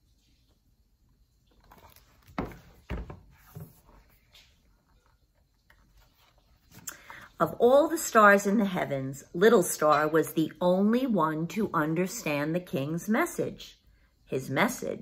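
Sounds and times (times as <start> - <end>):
book rustling: 1.4 - 7.3.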